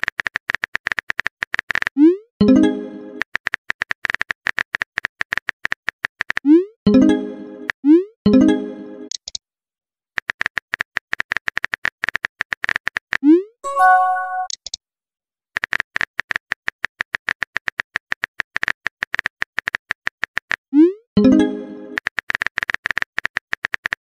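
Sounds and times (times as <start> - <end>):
message notification chime: 2.4 - 3.2, 13.6 - 14.5.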